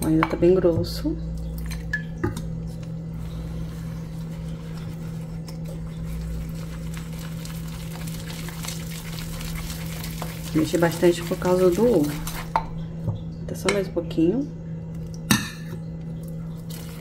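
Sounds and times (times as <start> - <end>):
steady low hum: 0.0 - 17.0
whisk stirring thick batter: 3.2 - 12.6.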